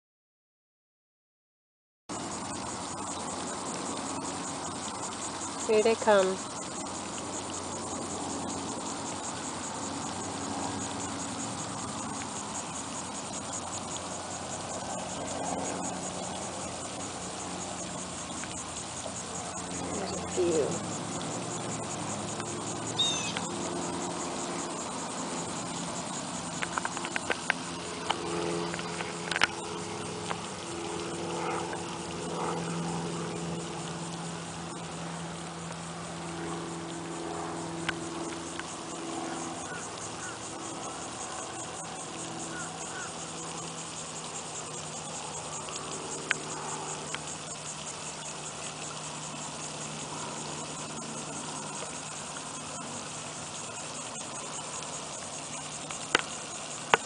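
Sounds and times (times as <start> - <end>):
low steady hum: 2.1 - 43.5
high insect trill: 2.1 - 57.0.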